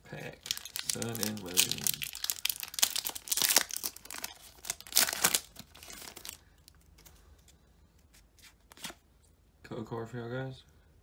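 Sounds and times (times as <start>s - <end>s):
foil wrapper tearing and crinkling: 0.4s - 6.4s.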